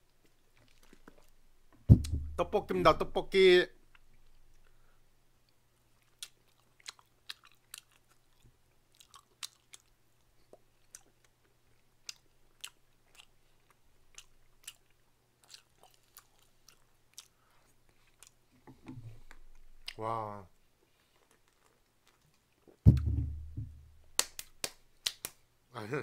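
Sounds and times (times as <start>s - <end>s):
faint chewing clicks and smacks: 0.0s - 1.4s, 3.8s - 4.8s, 5.4s - 20.0s, 20.8s - 22.8s.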